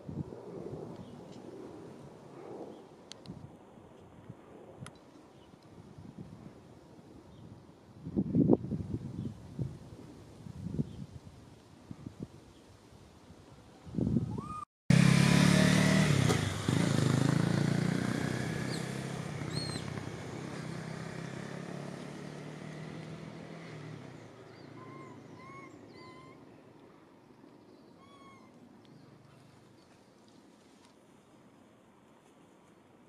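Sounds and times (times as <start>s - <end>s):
vehicle engine passing: 14.9s - 25.2s.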